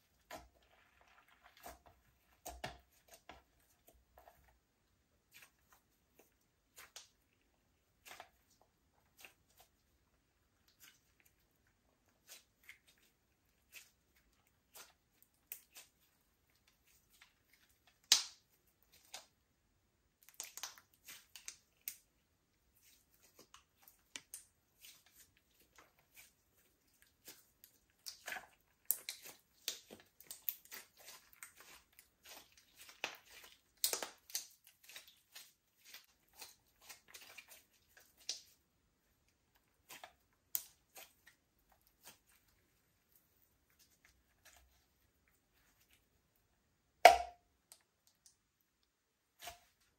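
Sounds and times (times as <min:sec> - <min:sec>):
sticky clicks of kneaded slime: 0:12.1 - 0:19.4, 0:20.1 - 0:22.2, 0:22.8 - 0:38.7, 0:39.3 - 0:42.6.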